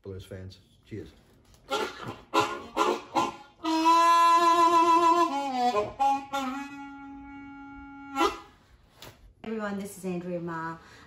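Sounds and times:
harmonica playing: 1.6 - 9.0.

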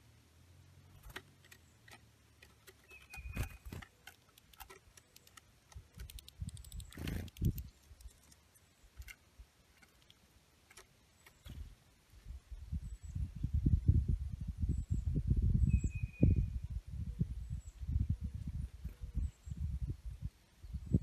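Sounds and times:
woodpecker pecking at a log: 0.9 - 11.4
birds tapping at a wooden feeder: 0.9 - 11.8
short high bird chirp: 2.8 - 3.8, 15.6 - 16.6.

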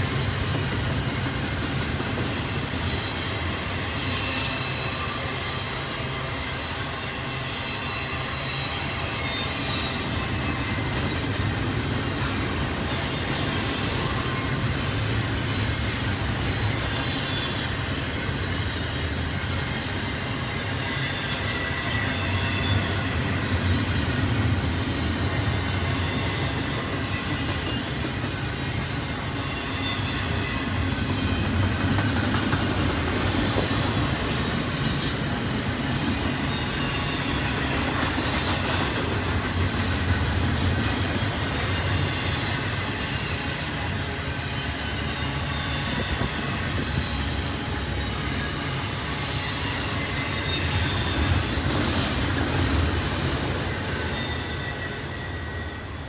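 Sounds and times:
train wheels rumbling on rail: 0.0 - 56.0
faint high squeal: 3.5 - 10.8, 16.7 - 32.2, 41.5 - 52.1, 53.5 - 56.0.

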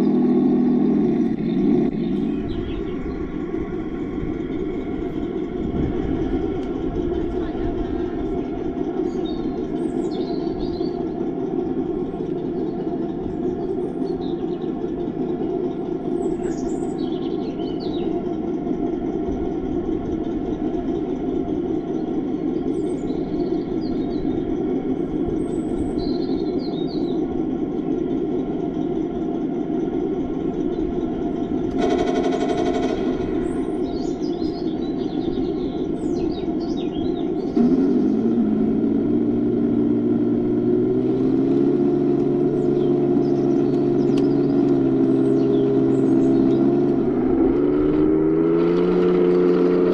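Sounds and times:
simulated tank engine rumbling: 0.0 - 49.9
faint bird chirps: 8.5 - 11.1, 16.1 - 18.2, 25.3 - 27.3, 33.3 - 38.4.

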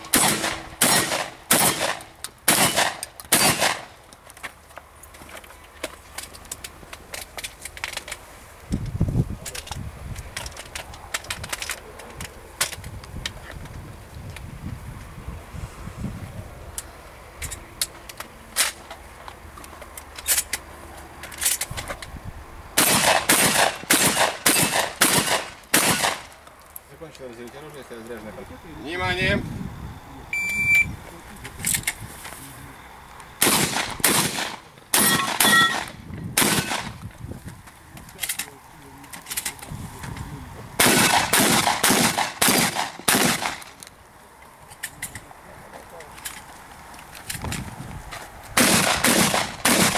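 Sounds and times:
shotgun shots: 0.0 - 4.0, 22.8 - 26.3, 33.4 - 37.0, 40.8 - 43.7, 48.6 - 49.9
shotgun clicks and clacks: 0.1 - 3.9, 22.8 - 26.4.

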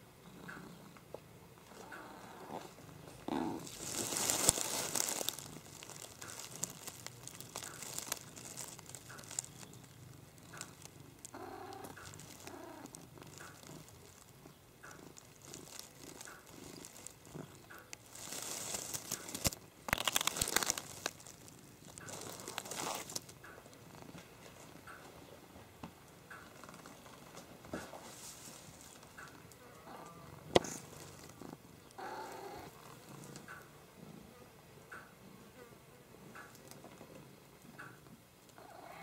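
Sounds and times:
cat purring: 0.0 - 39.0
hay crackling and rustling: 3.6 - 14.4, 15.1 - 23.3, 28.0 - 29.1.

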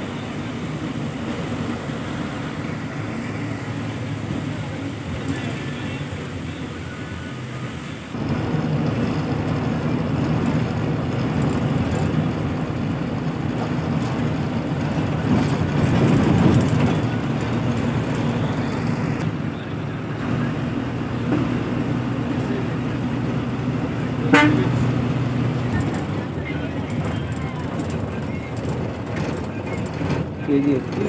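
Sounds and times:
bus engine drone: 0.0 - 31.0
road noise: 0.0 - 31.0.

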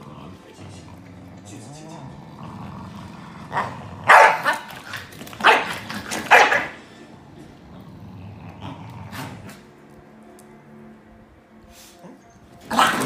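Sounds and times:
dogs barking sharply: 4.0 - 6.8.

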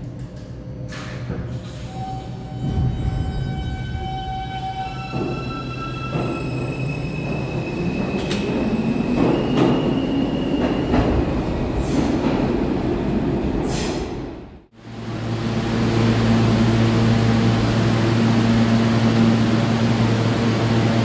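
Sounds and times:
subway train electric whine: 0.0 - 21.0.

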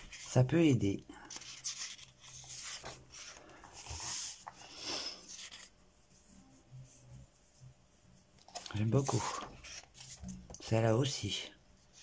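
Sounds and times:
paper pages turning: 0.0 - 0.4, 1.2 - 5.8, 8.4 - 10.7.

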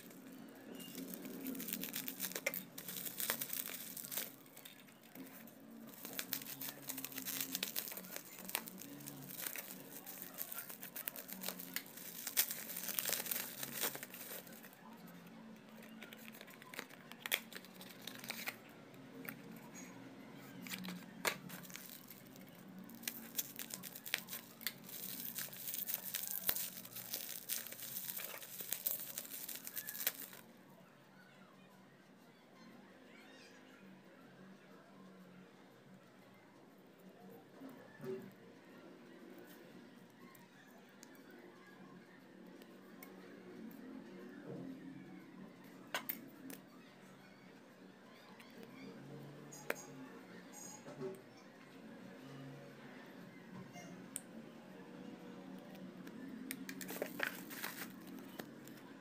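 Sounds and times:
bubble wrap crinkling: 0.0 - 19.8, 20.5 - 30.5, 56.6 - 58.9.

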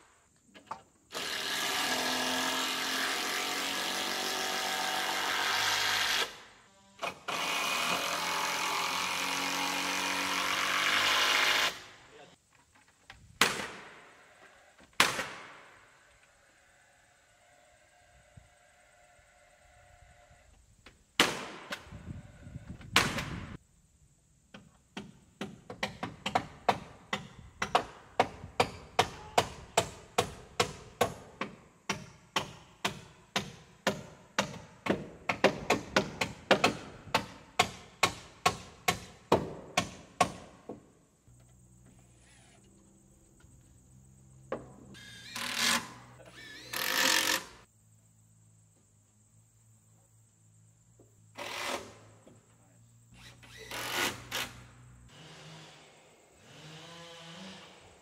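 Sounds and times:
hammer striking nails: 24.6 - 40.8.

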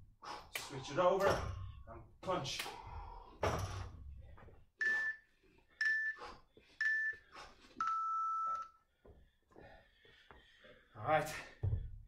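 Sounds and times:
heavy breath: 2.6 - 4.6, 8.8 - 11.7
long low timer beep: 5.8 - 6.2, 6.8 - 7.2, 7.8 - 8.8.

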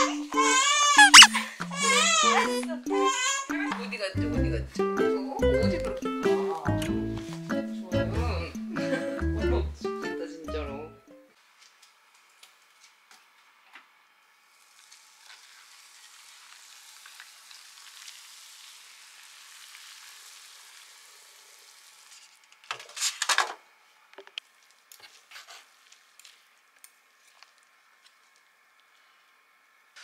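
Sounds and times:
hot water pouring into a bowl: 14.5 - 22.4.

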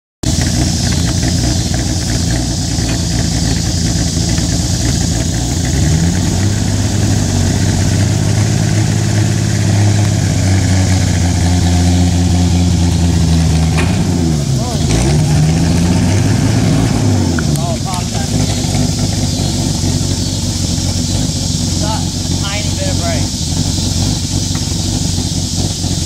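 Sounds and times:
engine idling: 0.2 - 26.0.

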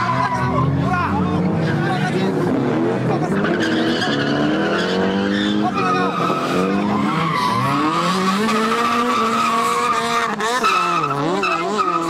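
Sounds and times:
car engines revving high: 0.0 - 12.0
tyre squeal: 3.4 - 12.0.

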